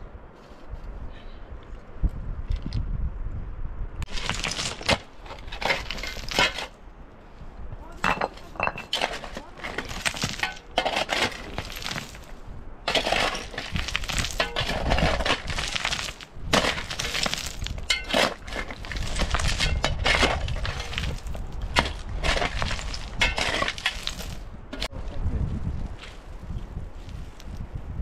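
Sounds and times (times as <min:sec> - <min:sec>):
hard objects clattering: 0:04.1 - 0:06.8, 0:08.0 - 0:12.3, 0:12.9 - 0:24.9.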